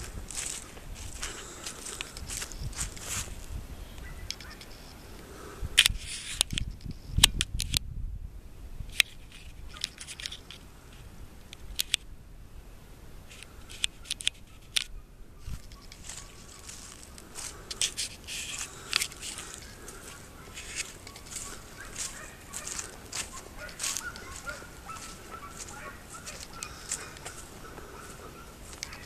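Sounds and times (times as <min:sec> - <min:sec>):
sharp clicks and crackling rustle: 0:01.3 - 0:03.1, 0:04.0 - 0:05.0, 0:05.8 - 0:07.8, 0:08.9 - 0:12.0, 0:13.3 - 0:14.9, 0:15.6 - 0:25.2, 0:28.7 - 0:29.0.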